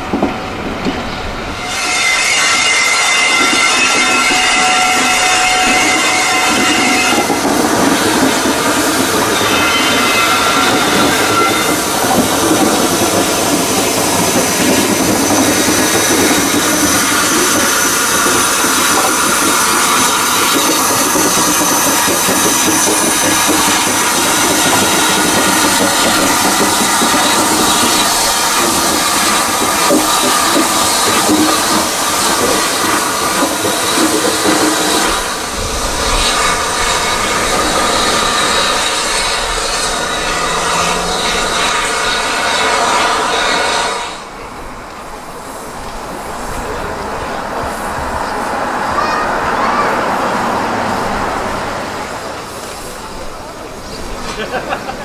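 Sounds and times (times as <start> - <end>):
wheels clattering on rails: 0.0 - 43.1, 44.2 - 55.0
steam hissing: 1.6 - 55.0.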